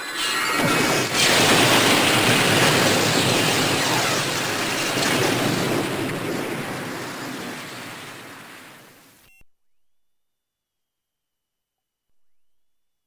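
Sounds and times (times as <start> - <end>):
loud rushing noise: 0.0 - 8.9.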